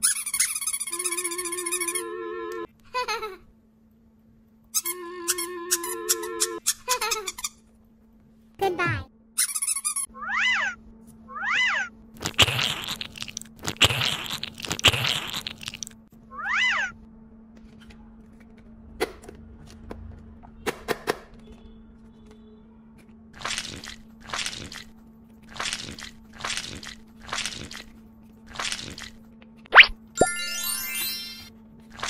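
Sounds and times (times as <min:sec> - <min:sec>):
play dough squishing: 0:12.2 - 0:16.0.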